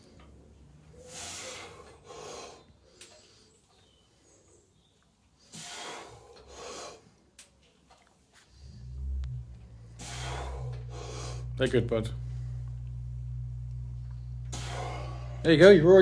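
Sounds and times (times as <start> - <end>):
man breathing hard: 0.9 - 3.6, 5.5 - 7.2, 9.8 - 11.6, 14.5 - 15.4.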